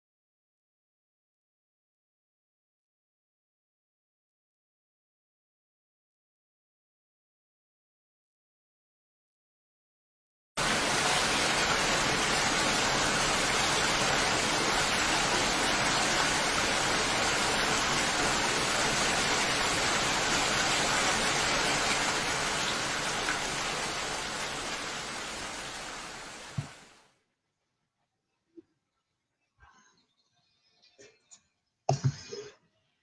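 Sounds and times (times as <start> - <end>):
heavy rainfall hiss: 10.6 - 27.0.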